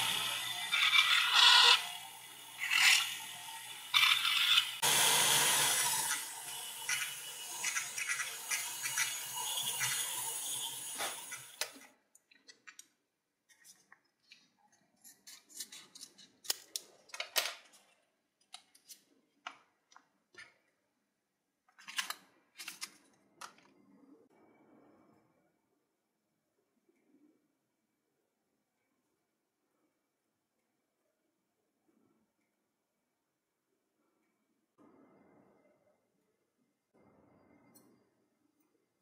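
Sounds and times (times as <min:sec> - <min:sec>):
burr grinding metal: 0:00.0 - 0:11.8
rotary tool motor hum: 0:00.0 - 0:11.8.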